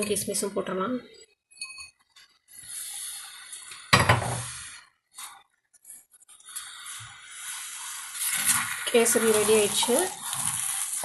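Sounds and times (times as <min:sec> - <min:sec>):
pan scraping: 0:07.1 - 0:11.0.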